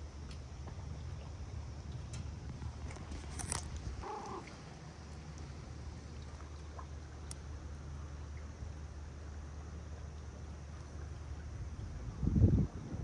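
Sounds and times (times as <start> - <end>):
cat mew: 4.0 - 4.5
cat purring: 4.0 - 4.5.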